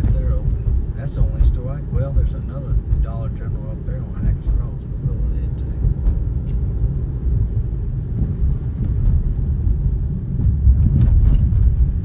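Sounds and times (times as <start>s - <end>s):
tyre and road noise in car: 0.0s - 12.0s.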